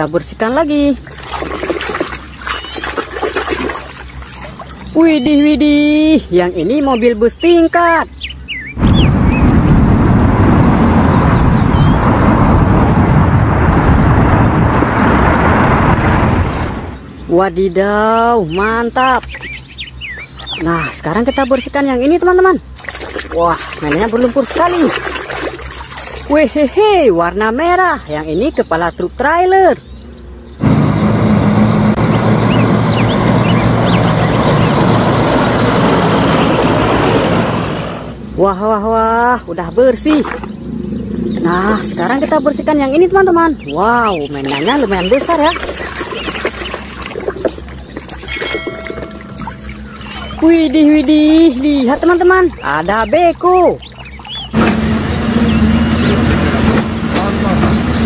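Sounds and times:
bus driving past: 0:30.1 - 0:38.4, 0:54.5 - 0:58.0
truck diesel engine running: 0:30.2 - 0:38.4, 0:54.3 - 0:58.0.

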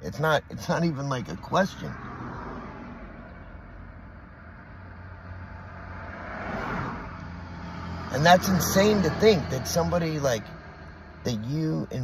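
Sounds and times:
vehicle passing rush: 0:00.0 - 0:12.0.

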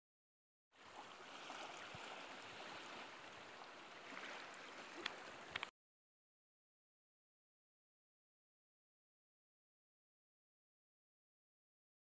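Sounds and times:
small waves lapping on shore: 0:00.8 - 0:05.7.

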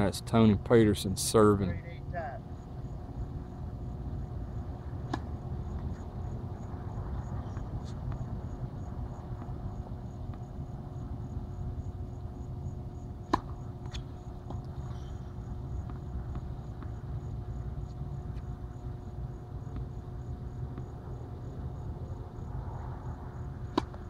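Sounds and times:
crickets chirping: 0:00.0 - 0:24.0
low background rumble: 0:00.0 - 0:24.0
tennis racket hitting ball: 0:13.2 - 0:14.6, 0:23.7 - 0:24.0.

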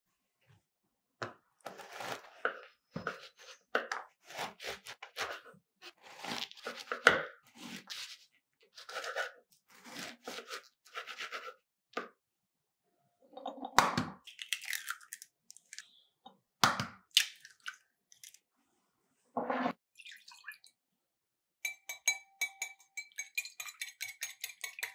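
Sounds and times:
knife sawing crusty bread: 0:08.8 - 0:11.5.

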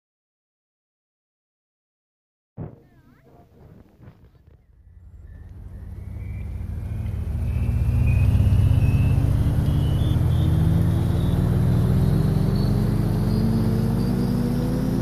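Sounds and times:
thin whine: 0:02.6 - 0:15.0
car engine running: 0:03.4 - 0:15.0.

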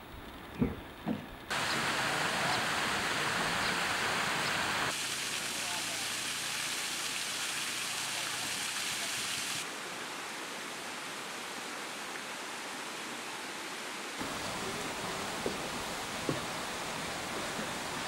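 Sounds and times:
waterfall splashing onto rocks: 0:01.5 - 0:09.7, 0:14.2 - 0:18.0.

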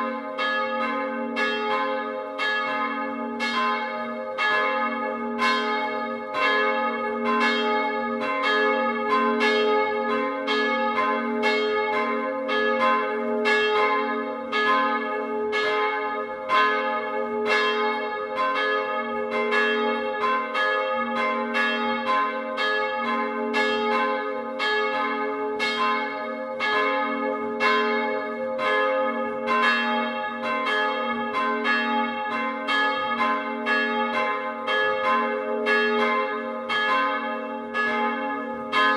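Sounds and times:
church bells pealing: 0:00.0 - 0:38.9.

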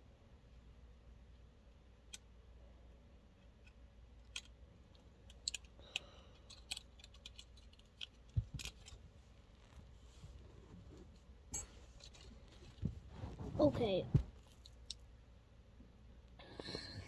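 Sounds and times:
low steady hum: 0:00.0 - 0:17.0
clicks and taps of objects handled: 0:03.5 - 0:09.0.

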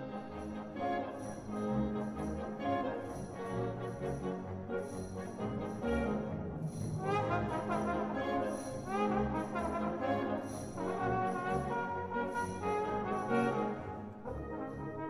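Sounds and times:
brass sustaining chords: 0:00.0 - 0:15.0
solo trombone melody: 0:04.8 - 0:15.0.

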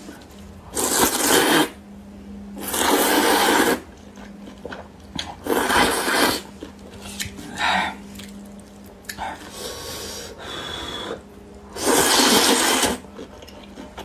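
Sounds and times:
person slurping noodles: 0:00.7 - 0:01.8, 0:02.6 - 0:03.9, 0:05.4 - 0:06.5, 0:11.8 - 0:13.0.

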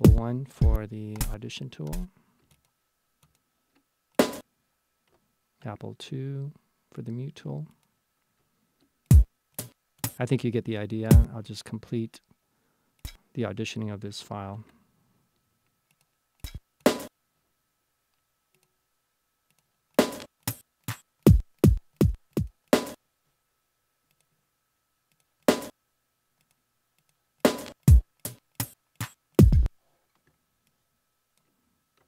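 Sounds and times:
electronic drum hits: 0:00.0 - 0:01.4, 0:21.3 - 0:22.9, 0:27.5 - 0:28.0, 0:29.4 - 0:29.7.

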